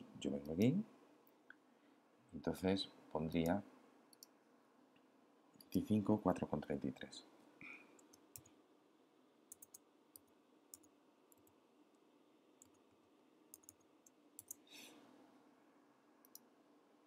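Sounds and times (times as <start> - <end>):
low room hum: 0.0 - 17.0
soft hiss: 0.0 - 17.0
computer keys typing: 8.0 - 8.5, 9.5 - 11.6, 12.6 - 12.8, 13.5 - 14.6.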